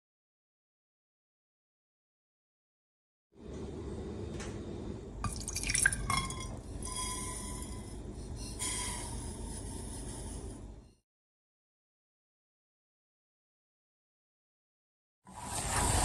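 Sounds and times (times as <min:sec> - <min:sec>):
sugar pouring into water: 0:05.3 - 0:06.5.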